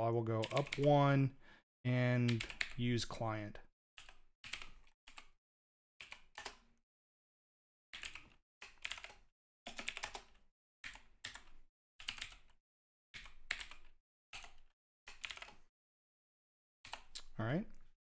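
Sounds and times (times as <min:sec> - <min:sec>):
typing on computer keyboard: 0:00.4 - 0:00.9, 0:02.2 - 0:02.8, 0:04.0 - 0:05.3, 0:06.0 - 0:06.6, 0:08.0 - 0:12.6, 0:13.2 - 0:15.6.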